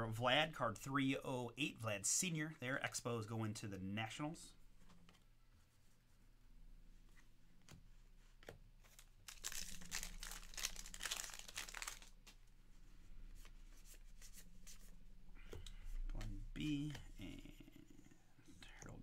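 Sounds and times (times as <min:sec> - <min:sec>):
wrapper tearing and crinkling: 0:09.0 - 0:12.2.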